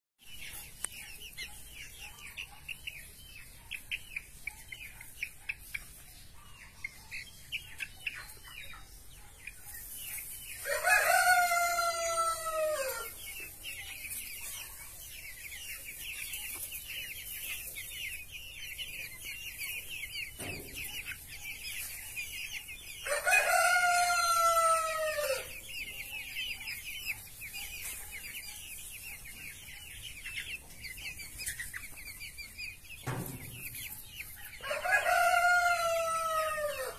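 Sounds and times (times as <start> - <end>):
chicks peeping: 0.2 - 36.9
rooster crowing: 10.6 - 13.1, 23.0 - 25.5, 34.6 - 36.9.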